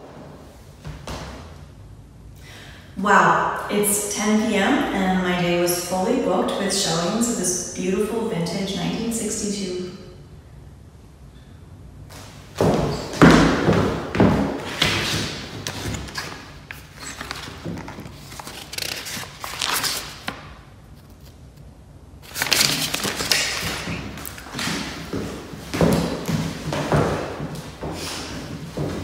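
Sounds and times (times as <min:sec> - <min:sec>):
footsteps on hardwood floor: 0:12.2 - 0:18.2, 0:23.2 - 0:29.0.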